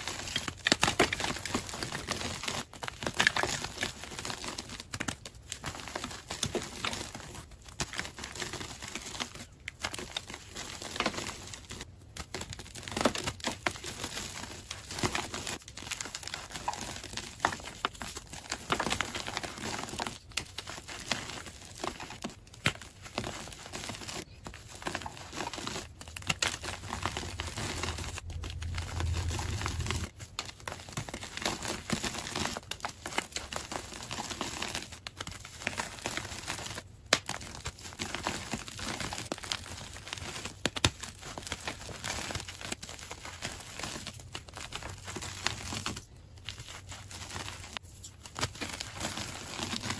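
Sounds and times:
low hum: 26.6 - 30.1.

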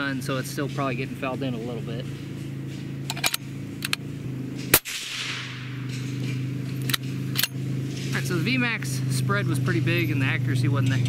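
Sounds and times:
quad bike engine running: 0.0 - 11.0
suppressed rifle shot: 4.6 - 7.6.

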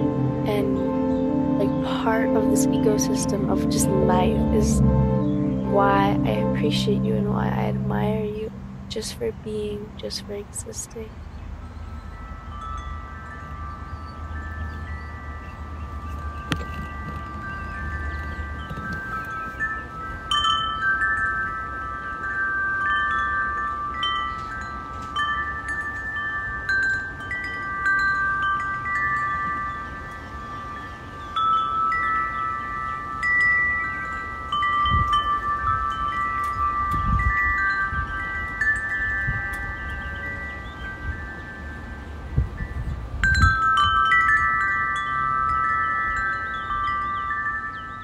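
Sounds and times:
low rumbles: 0.0 - 30.8
wind chime ringing: 0.0 - 48.0.

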